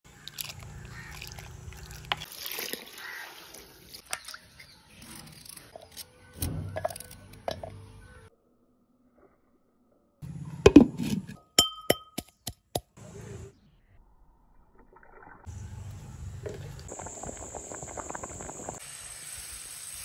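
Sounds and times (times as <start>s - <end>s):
stew bubbling in a clay pot: 0.1s - 3.3s, 16.4s - 18.8s.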